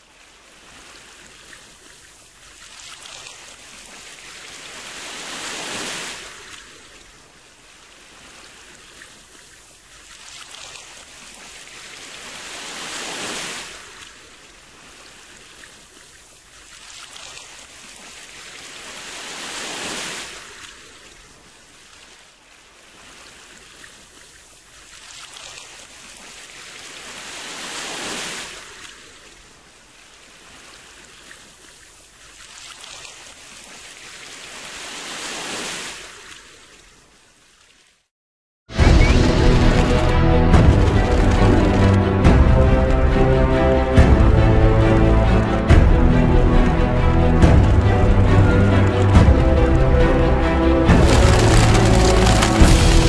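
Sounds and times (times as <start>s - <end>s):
sea waves breaking: 0.0s - 37.2s, 38.7s - 53.0s.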